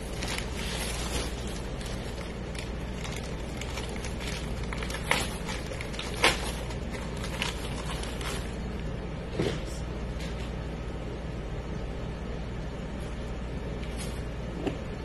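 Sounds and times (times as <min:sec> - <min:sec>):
plastic bag crinkling: 0:00.0 - 0:08.7
steady low hum: 0:00.0 - 0:15.0.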